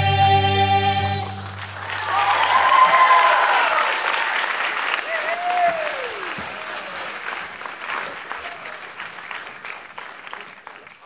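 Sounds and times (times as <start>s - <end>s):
audience applauding and cheering: 1.3s - 11.0s
falling whoop: 1.9s - 4.5s, 5.1s - 6.9s.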